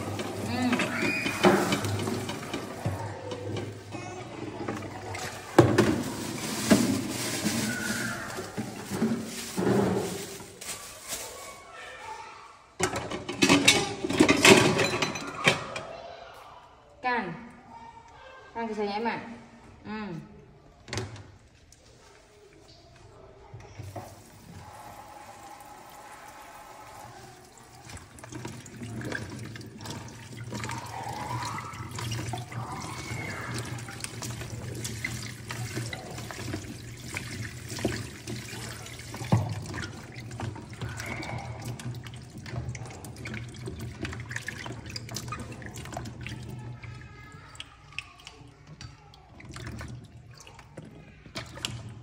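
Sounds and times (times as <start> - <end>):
water splashing: 0.0 - 11.7, 23.8 - 52.0
plastic tub and colander clatter: 0.0 - 12.2, 12.8 - 15.9, 20.8 - 52.0.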